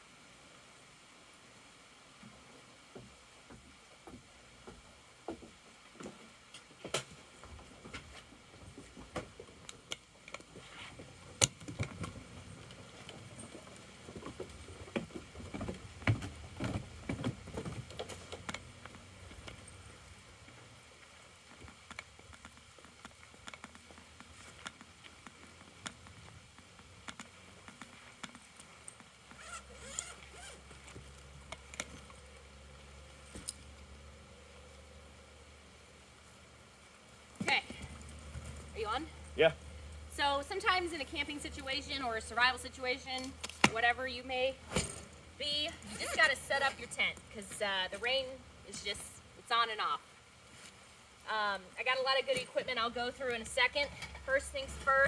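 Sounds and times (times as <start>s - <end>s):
suitcase rustling: 27.3s - 31.1s.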